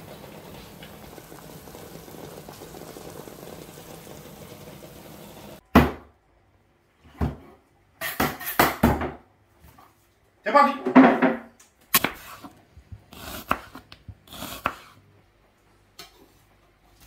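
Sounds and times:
water boiling in pots: 0.0 - 5.6.

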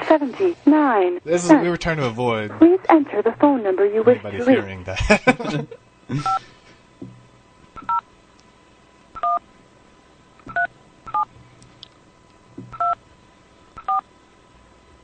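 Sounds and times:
telephone keypad beeps: 9.2 - 9.4, 10.5 - 11.3, 12.8 - 13.0, 13.8 - 14.0.

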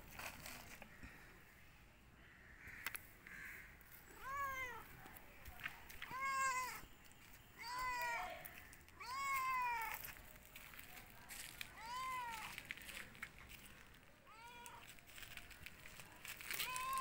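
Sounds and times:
cat meowing: 9.0 - 9.9.

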